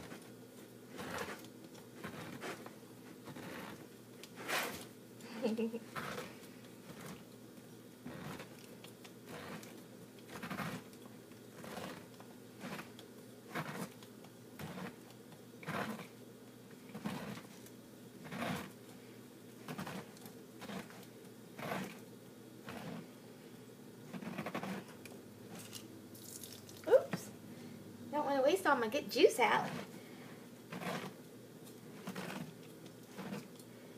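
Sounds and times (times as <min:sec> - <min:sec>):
pineapple corer rasping: 0:00.9 - 0:04.9, 0:05.9 - 0:07.2, 0:08.0 - 0:16.2, 0:16.8 - 0:18.8, 0:19.6 - 0:22.0, 0:22.6 - 0:23.1, 0:24.1 - 0:25.8, 0:29.6 - 0:30.0, 0:30.7 - 0:31.2, 0:31.9 - 0:33.6.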